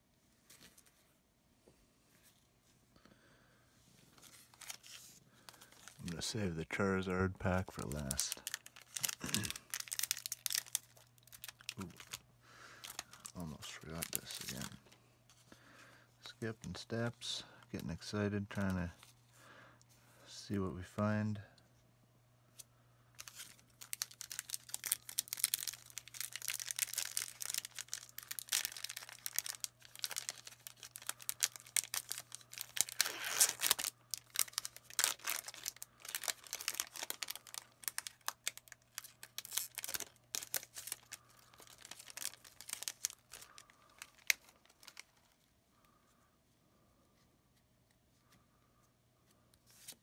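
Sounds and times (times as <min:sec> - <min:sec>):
foil wrapper tearing and crinkling: 0:04.2 - 0:06.4, 0:07.7 - 0:12.2, 0:12.8 - 0:14.8, 0:23.2 - 0:45.3.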